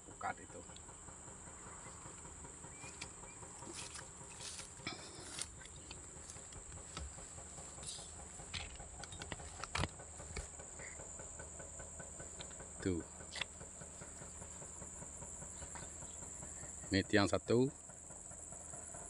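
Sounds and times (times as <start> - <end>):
insects chorus: 0.0 - 19.0
light clicks and patters: 0.1 - 19.0.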